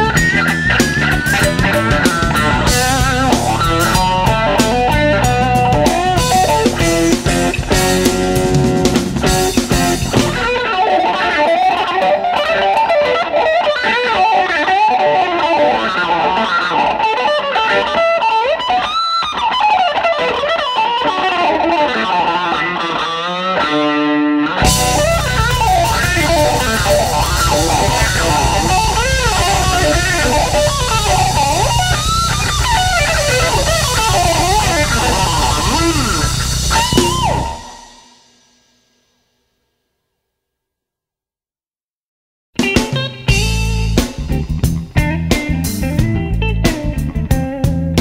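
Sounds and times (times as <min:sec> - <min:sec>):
bass and drums: 0:00.0 - 0:10.8, 0:24.6 - 0:38.1, 0:42.6 - 0:48.0
electric guitar solo: 0:00.0 - 0:38.3, 0:42.6 - 0:48.0.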